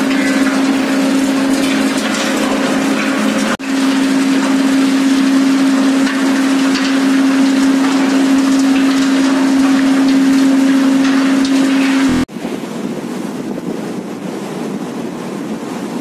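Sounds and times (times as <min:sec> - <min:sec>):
machine hum: 0:00.0 - 0:12.3
loud rush of noise: 0:00.0 - 0:16.0.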